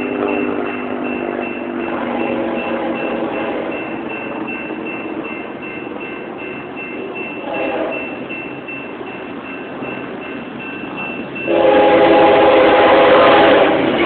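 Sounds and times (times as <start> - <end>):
distant train horn: 0.0 - 4.0, 7.4 - 8.2, 11.4 - 14.0
railroad crossing bell dinging: 0.0 - 14.0.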